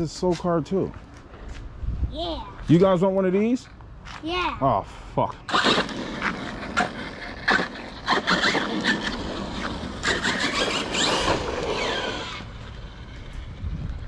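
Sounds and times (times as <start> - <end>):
rc car motor whine: 5.5 - 13.4.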